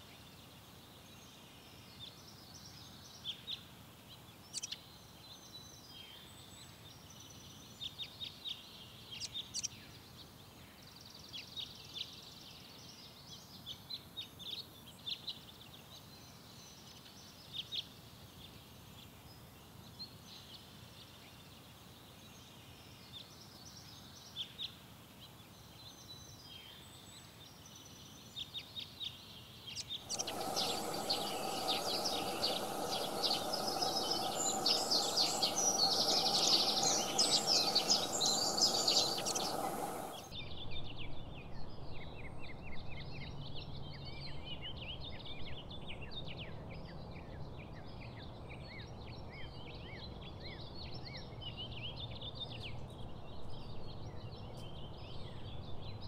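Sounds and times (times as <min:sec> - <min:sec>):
faint hiss: 0:29.3 - 0:40.4
songbirds chirping: 0:29.8 - 0:40.3
steady hum: 0:30.1 - 0:40.3.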